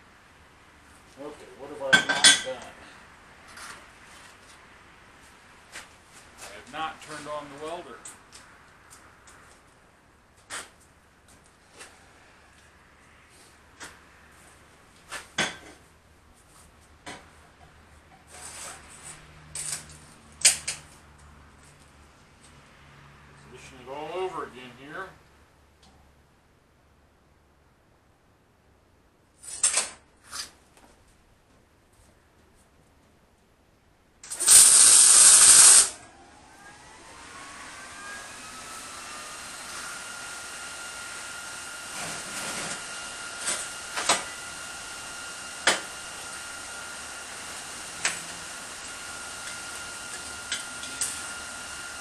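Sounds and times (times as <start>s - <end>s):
arc welder crackling hiss: 34.2s - 36.0s
faint steady whir: 34.3s - 52.0s.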